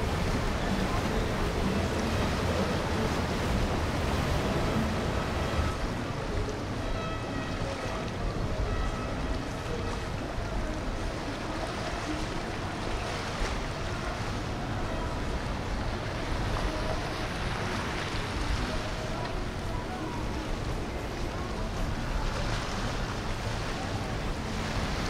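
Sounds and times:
boat engine drone: 0.0 - 25.0
water wash: 0.0 - 25.0.

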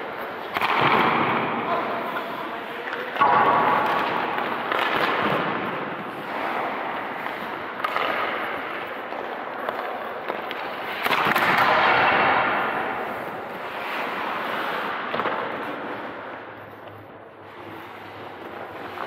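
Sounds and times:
sharp knocks of puck or stick: 0.5 - 1.6, 3.2 - 13.2, 15.0 - 15.7
skate blades scraping ice: 3.8 - 19.0.

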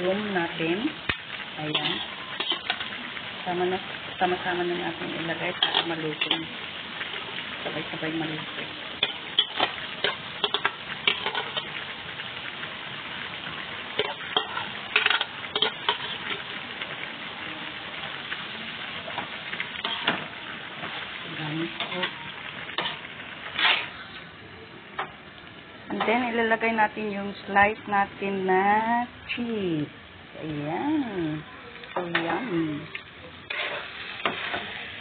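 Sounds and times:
food sizzling in a wok: 0.0 - 35.0.

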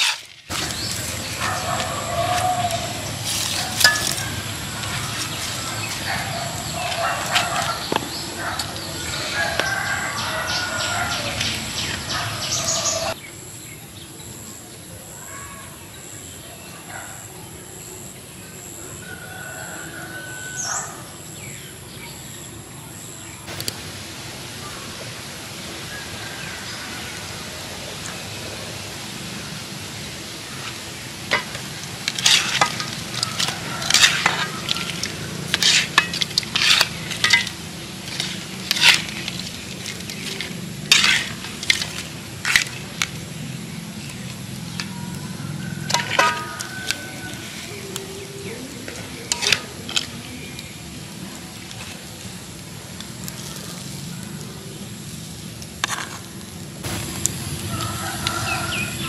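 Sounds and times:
butter and oil sizzling: 0.0 - 10.8, 23.5 - 59.0.

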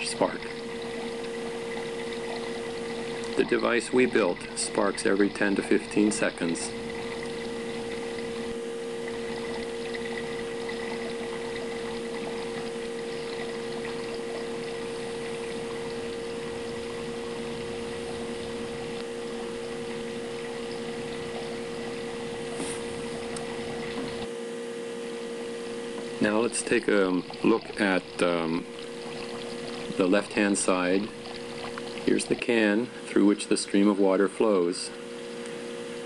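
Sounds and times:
water splashing into metal buckets: 0.0 - 16.2, 26.2 - 32.8
steady hum: 0.0 - 36.0.

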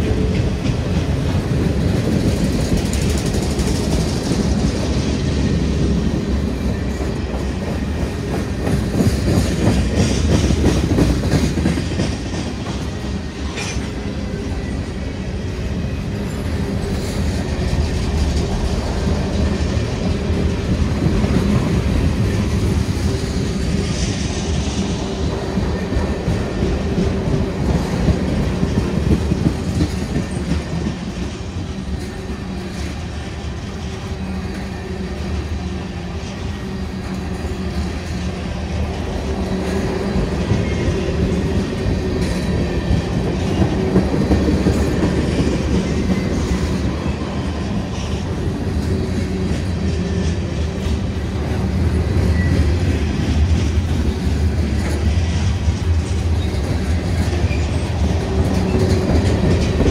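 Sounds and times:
freight train rumbling past: 0.0 - 59.9
wheels clacking over rail joints: 36.2 - 59.9.

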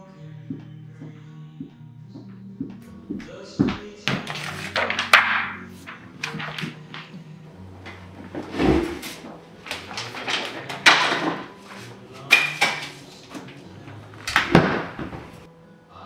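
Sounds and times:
sharp knocks and clatters: 3.6 - 7.2, 7.9 - 15.5.

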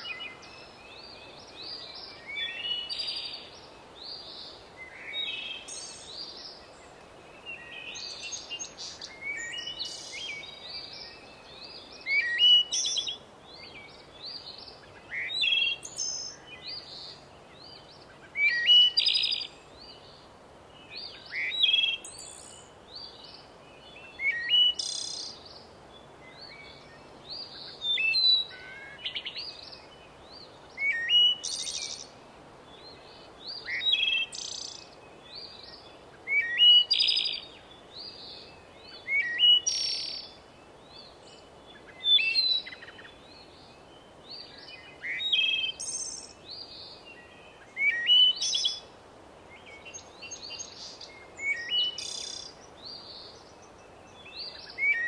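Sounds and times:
steady background hiss: 0.0 - 55.0
songbird chirping and whistling: 33.5 - 37.5, 38.2 - 40.4, 44.4 - 48.8, 49.6 - 53.3, 54.1 - 55.0.

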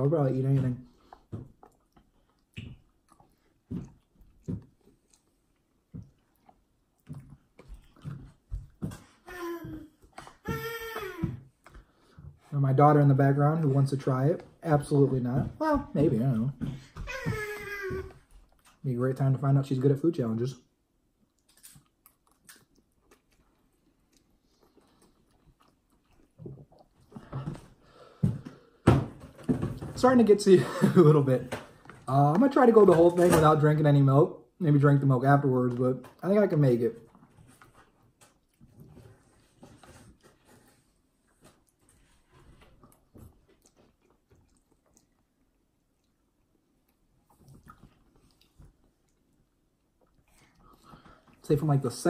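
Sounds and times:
person chewing noodles: 0.9 - 8.8, 21.2 - 28.3, 37.1 - 51.4.

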